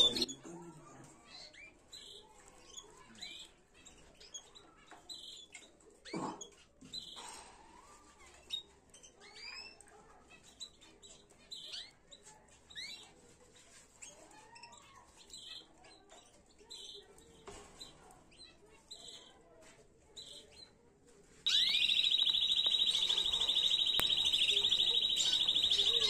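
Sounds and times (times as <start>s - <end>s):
canary chirping and whistling: 0.0s - 0.3s, 21.5s - 26.0s
canary rapid trill: 21.5s - 26.0s.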